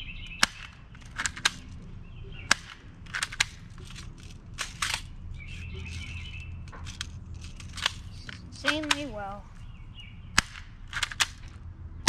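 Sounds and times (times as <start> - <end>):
airsoft pistol cocking and firing: 0.1 - 1.8, 2.4 - 9.1, 10.4 - 11.6.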